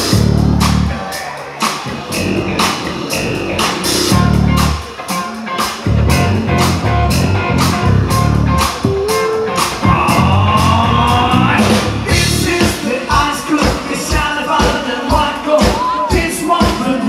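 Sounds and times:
steady kick drum beat: 0.0 - 1.0, 1.6 - 17.0
loud live rock band: 0.0 - 17.0
person singing into a microphone: 8.9 - 17.0.

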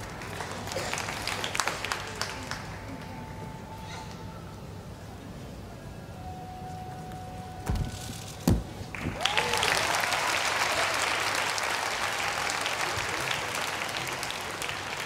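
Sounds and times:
audience applauding: 0.0 - 3.1, 8.9 - 15.0
gymnast landing thuds: 7.6 - 9.2.

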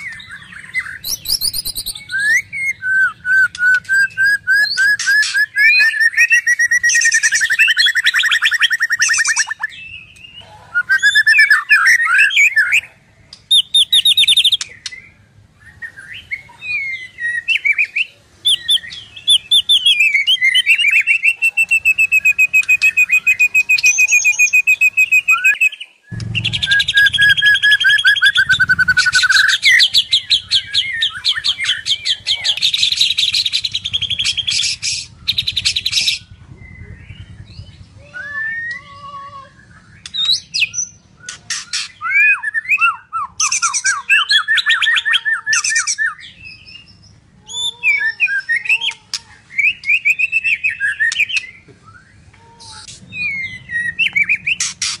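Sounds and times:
bird singing whistles and trills: 0.0 - 12.9, 13.5 - 48.8, 49.6 - 55.0
low rumble: 26.1 - 40.4.

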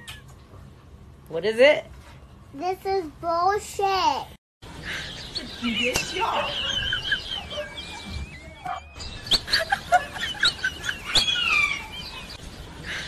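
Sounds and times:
birds chirping and calling: 4.6 - 13.0.

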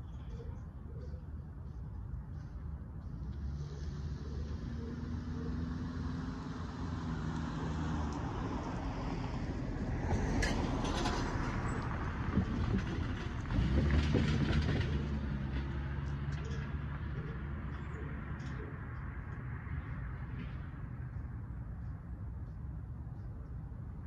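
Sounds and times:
car engine passing: 3.2 - 21.5.

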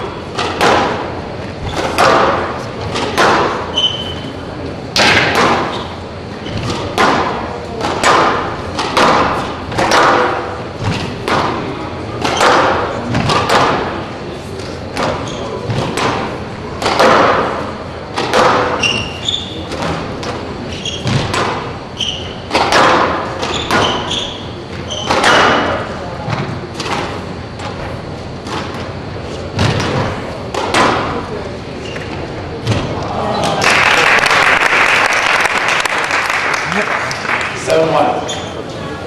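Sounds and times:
squash ball hitting walls: 0.3 - 4.3, 4.9 - 33.6
shoes squeaking on court floor: 1.3 - 4.8, 5.6 - 7.0, 14.6 - 16.0, 18.6 - 22.6, 23.2 - 33.4, 38.1 - 39.0.

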